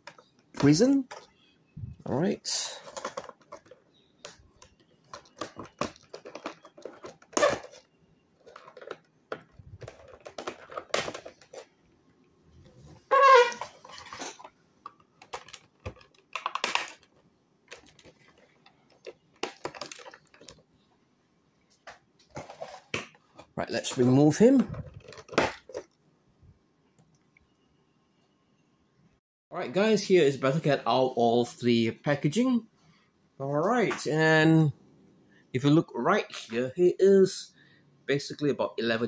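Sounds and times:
plastic and cardboard rustling: 0:02.3 - 0:04.1, 0:04.8 - 0:11.8, 0:12.7 - 0:20.7, 0:21.8 - 0:25.9.

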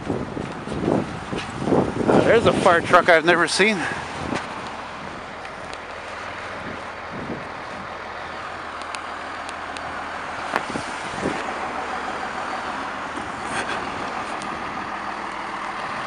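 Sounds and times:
diesel engine idling hum: 0:00.0 - 0:16.0
tyres hissing on wet road: 0:00.8 - 0:16.0
sharp clicks: 0:08.8 - 0:09.9.

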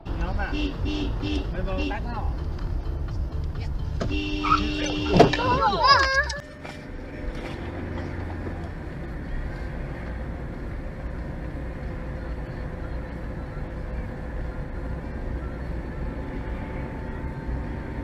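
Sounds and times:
car engine and tyre noise: 0:00.0 - 0:18.0.

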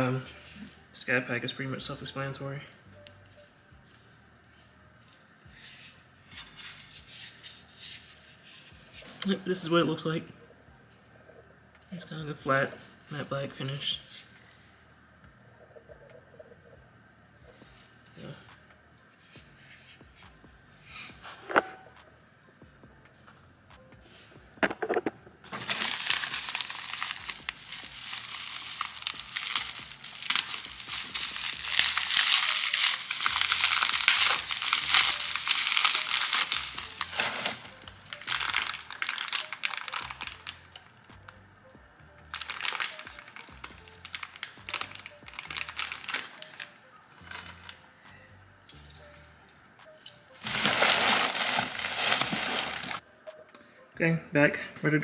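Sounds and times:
bubble wrap crinkling: 0:24.9 - 0:41.3, 0:42.2 - 0:47.8, 0:50.4 - 0:53.0.

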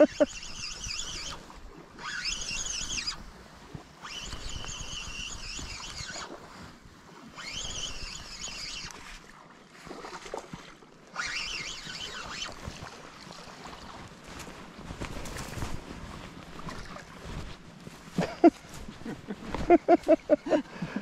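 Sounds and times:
fishing reel gear whirring: 0:00.0 - 0:03.2, 0:04.0 - 0:06.4, 0:07.3 - 0:09.1, 0:11.1 - 0:12.7.

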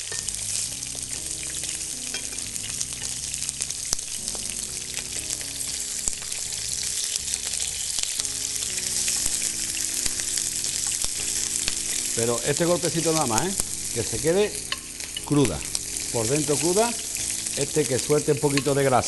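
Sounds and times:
metal utensils clicking on pan: 0:00.0 - 0:00.4, 0:02.0 - 0:03.2, 0:14.4 - 0:19.0
fish sizzling in a pan: 0:00.0 - 0:19.0.

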